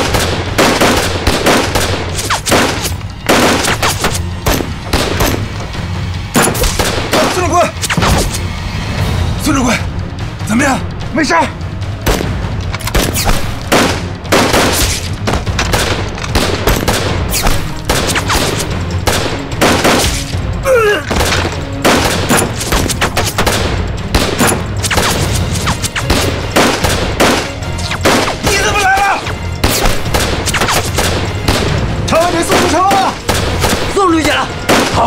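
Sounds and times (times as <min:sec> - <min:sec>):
rifle and machine gun fire: 0:00.0 - 0:03.9.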